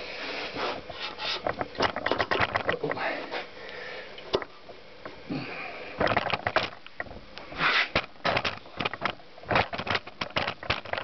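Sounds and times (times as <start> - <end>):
short sniff-like hiss: 7.6 - 8.0.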